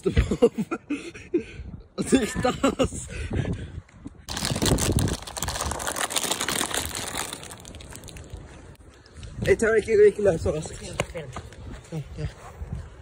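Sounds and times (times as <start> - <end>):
plastic bag crinkling: 4.3 - 8.5.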